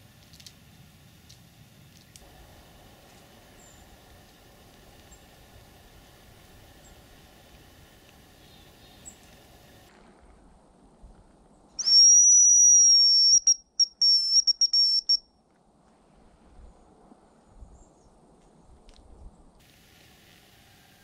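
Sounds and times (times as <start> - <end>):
decoy whistle notes: 11.8 - 15.2.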